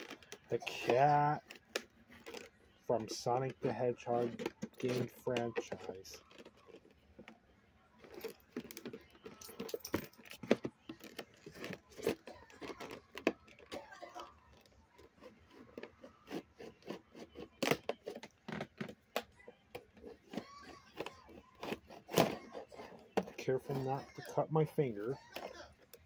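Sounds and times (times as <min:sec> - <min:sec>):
knife cutting package: 0:10.2 - 0:19.0.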